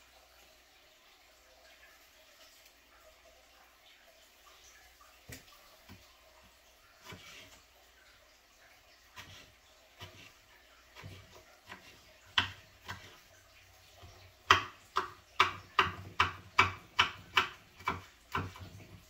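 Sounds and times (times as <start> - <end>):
knife chopping on wooden board: 11.0 - 13.2, 14.0 - 19.0.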